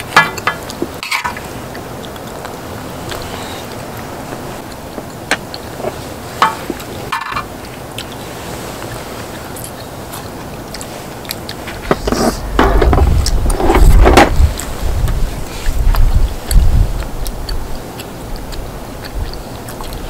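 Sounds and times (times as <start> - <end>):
chewing and mouth noises: 0.0 - 20.0
low microphone rumble: 0.0 - 20.0
steady hiss: 0.0 - 20.0.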